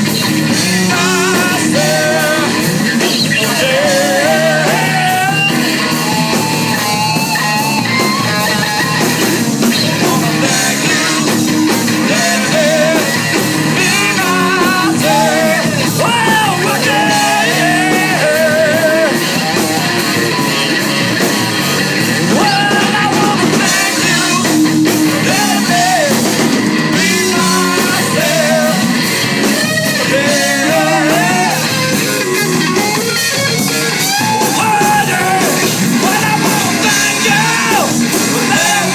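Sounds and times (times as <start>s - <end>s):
bass guitar: 0.0s - 38.9s
drums: 0.0s - 38.9s
electric guitar: 0.0s - 38.9s
man singing: 0.6s - 6.0s, 9.6s - 19.6s, 22.2s - 29.0s, 29.8s - 31.8s, 34.2s - 38.9s.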